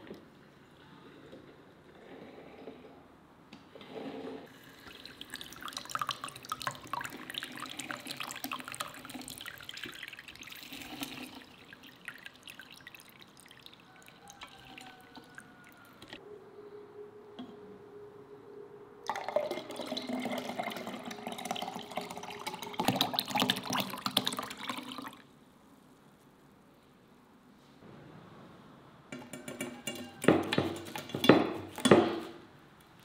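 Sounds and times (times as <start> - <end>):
juice trickling into a plastic jug: 4.5 - 16.1, 19.1 - 25.3.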